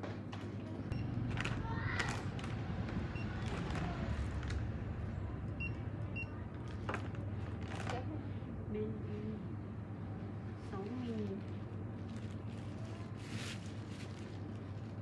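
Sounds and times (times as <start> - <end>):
steady low hum: 0.0 - 15.0
plastic packets crinkling: 11.2 - 15.0.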